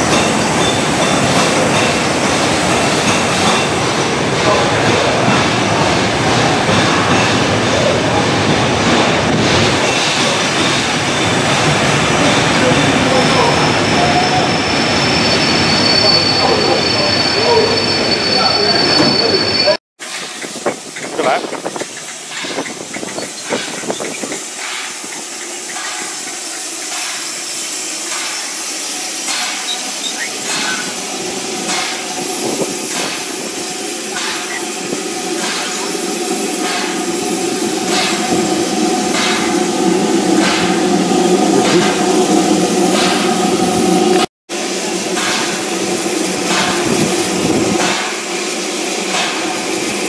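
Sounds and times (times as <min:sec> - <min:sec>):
steam hissing from locomotive: 0:00.0 - 0:50.0
train wheels rolling on rails: 0:00.0 - 0:50.0
wind buffeting microphone: 0:20.2 - 0:24.6, 0:32.1 - 0:33.7.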